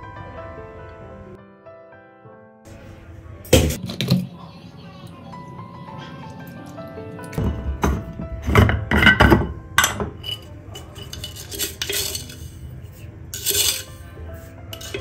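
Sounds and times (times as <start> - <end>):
glass jar clinking: 7.4 - 12.6, 13.4 - 14.0.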